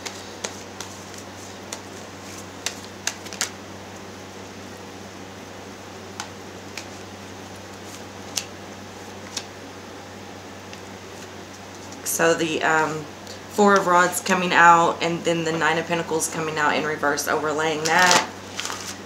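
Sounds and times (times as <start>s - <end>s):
steady low hum: 0.0s - 19.0s
cards clicking and snapping: 2.6s - 3.6s, 8.3s - 8.5s.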